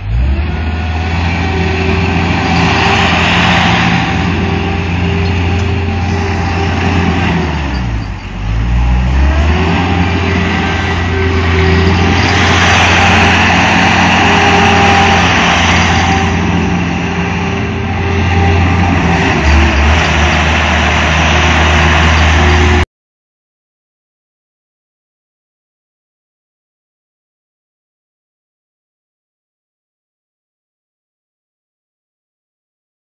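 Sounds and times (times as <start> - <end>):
skid steer loader engine running: 0.0 - 22.8.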